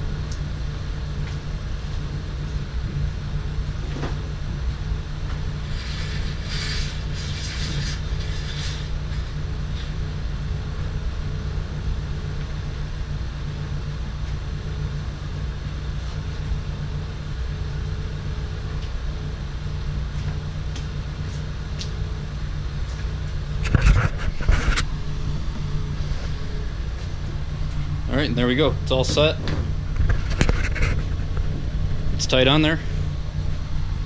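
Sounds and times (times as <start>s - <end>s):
steady low hum: 0.0s - 34.0s
car hardtop scraping and rattling: 23.6s - 27.9s, 29.0s - 32.2s.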